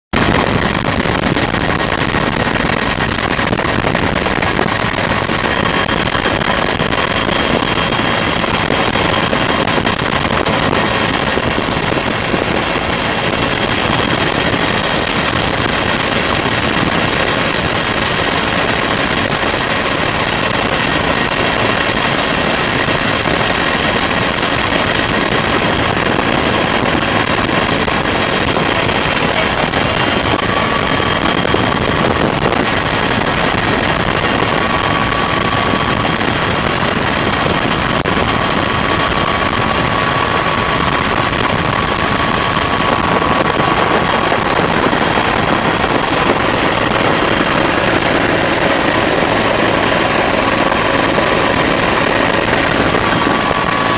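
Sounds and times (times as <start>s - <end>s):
helicopter engine and rotor: 0.1s - 53.9s
high-pitched turbine whine: 0.2s - 53.9s.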